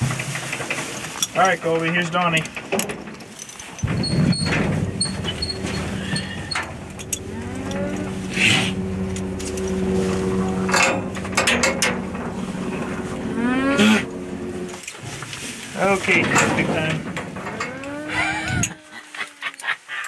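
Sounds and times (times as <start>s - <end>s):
hooves knocking on metal floor: 3.8s - 18.7s
llamas humming: 4.9s - 14.9s, 17.4s - 20.0s.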